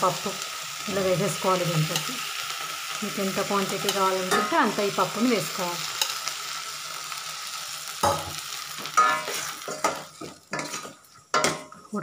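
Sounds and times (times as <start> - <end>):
food sizzling in pot: 0.0 - 12.0
steel spoon stirring and scraping: 9.0 - 11.8.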